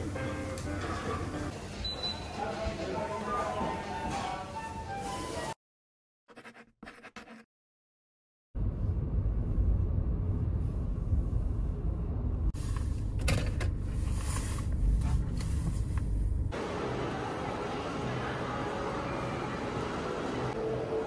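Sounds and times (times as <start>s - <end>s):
vehicle rumble and hiss: 8.7s - 18.2s.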